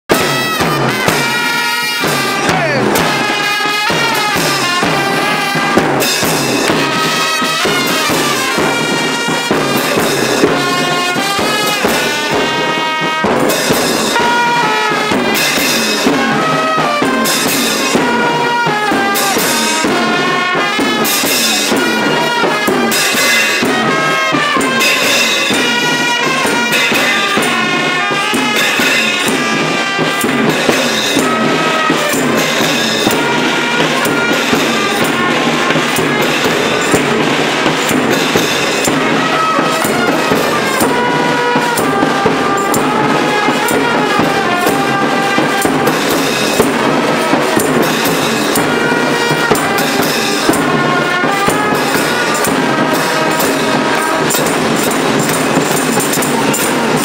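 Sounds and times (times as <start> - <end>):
hand cymbals clashing: 0.1 - 57.0
marching bass drums: 0.1 - 57.0
trumpet playing tune: 0.1 - 57.0
tambourine: 39.8 - 57.0.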